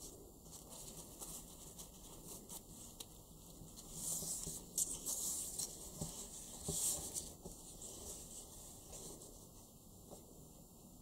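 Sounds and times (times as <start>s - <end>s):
ribbon rustling: 0.0s - 10.2s.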